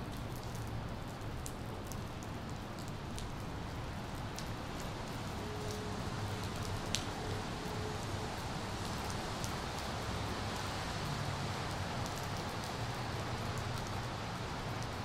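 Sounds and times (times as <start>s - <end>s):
rain falling: 0.0s - 15.0s
faint drip ticks: 0.1s - 3.4s, 4.1s - 7.4s.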